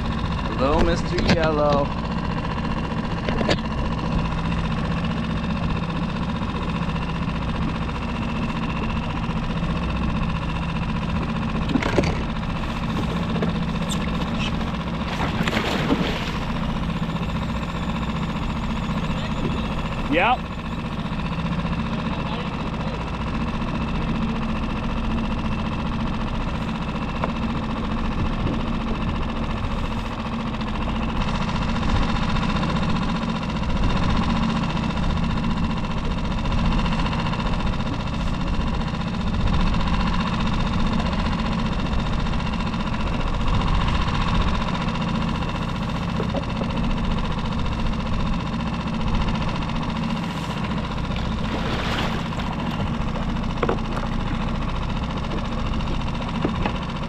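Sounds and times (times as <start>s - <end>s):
boat motor idling: 0.0s - 57.0s
fish splashing at surface: 15.0s - 16.6s, 51.2s - 52.8s.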